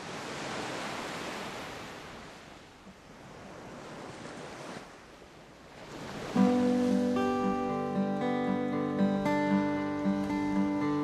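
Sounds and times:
ocean waves hissing: 6.0 - 11.0.

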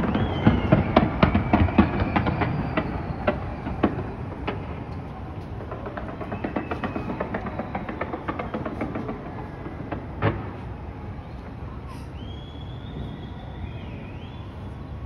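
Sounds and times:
fireworks cracking and banging: 0.0 - 11.6.

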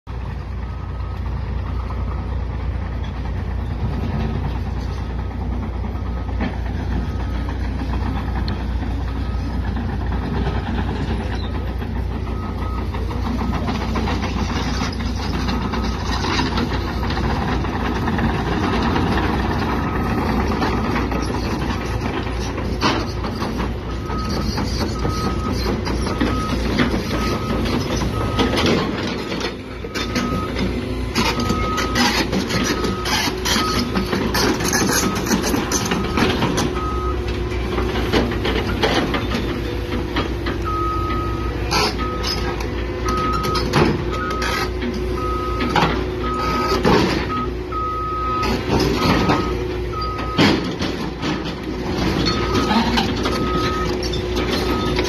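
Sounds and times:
excavator diesel engine running: 0.0 - 55.0
travel alarm beeping: 12.2 - 13.9, 24.0 - 34.0, 40.6 - 42.4, 43.0 - 44.6, 45.2 - 50.5, 52.3 - 54.0.

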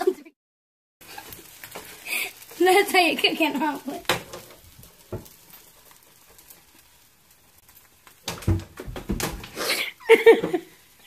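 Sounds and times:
boy laughing and gasping: 9.5 - 10.7.

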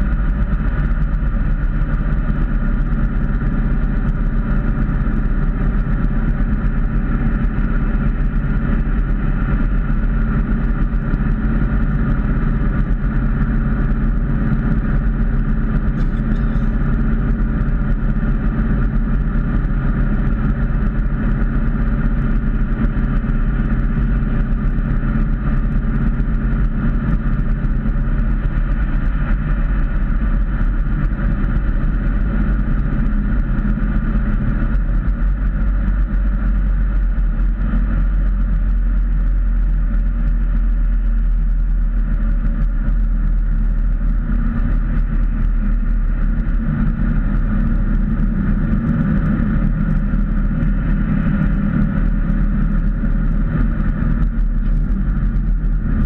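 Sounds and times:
road and tyre noise: 0.0 - 56.0
car engine cruising: 12.3 - 19.6.

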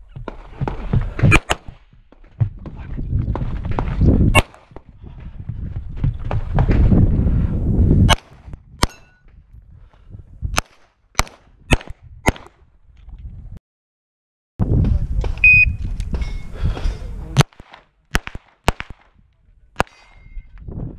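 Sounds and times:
heavy rumbling of movement: 0.0 - 10.6
pistol shots: 1.3 - 1.8, 4.4 - 4.8, 10.6 - 12.6, 17.4 - 19.2, 19.8 - 20.2
wind on microphone: 2.4 - 13.6, 14.6 - 17.4, 19.1 - 20.9.

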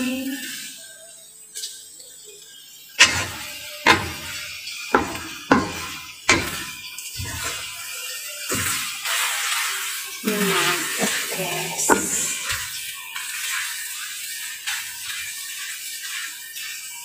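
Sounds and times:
wooden spatula knocking on a pan: 3.0 - 7.6, 8.5 - 8.8, 11.9 - 12.6.

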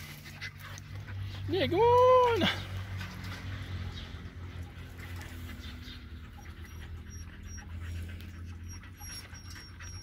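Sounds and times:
dog panting: 0.0 - 1.5, 3.4 - 10.0
puppies suckling: 2.8 - 10.0.

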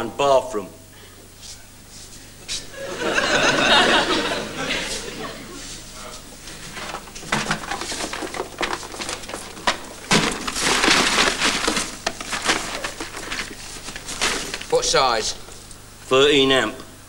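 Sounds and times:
rummaging through cardboard box: 6.4 - 15.5.

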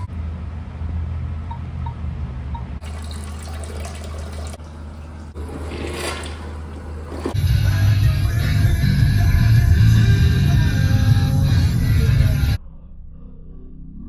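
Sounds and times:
toilet flushing: 2.8 - 7.4.

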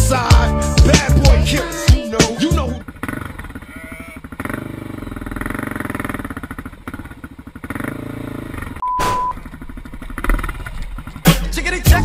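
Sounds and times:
dirt bike engine running: 0.0 - 12.0
high beep: 8.8 - 9.4.

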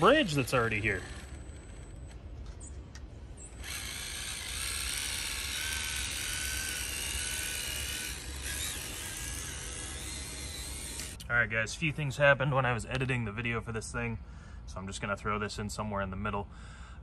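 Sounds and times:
toy car electric motor whining: 0.0 - 2.1, 3.5 - 11.2.

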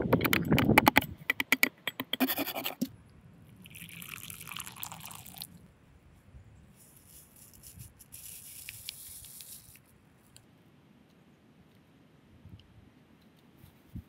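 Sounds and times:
coffee powder trickling into cup: 3.6 - 5.5.

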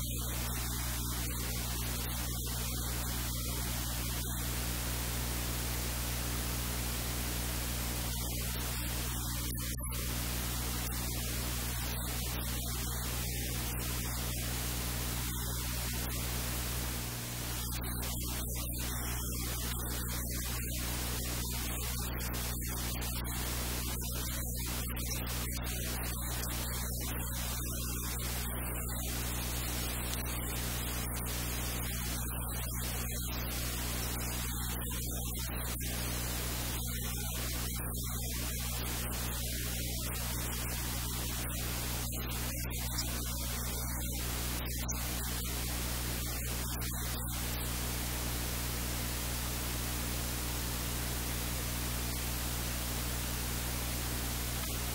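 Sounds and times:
low electrical hum: 0.0 - 54.9
static hiss: 0.0 - 54.9.

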